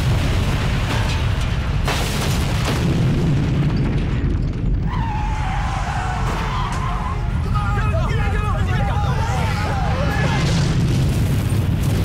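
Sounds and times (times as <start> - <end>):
deep rumble: 0.0 - 7.9, 8.5 - 12.0
tyres screeching: 4.9 - 7.8.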